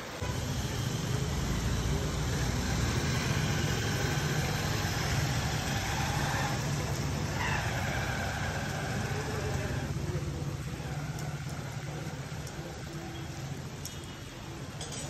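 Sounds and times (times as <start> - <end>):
tyre hiss on wet road: 0.0 - 14.4
steady rain: 0.0 - 15.0
motor scooter passing: 0.2 - 10.0
small car passing: 0.2 - 10.0.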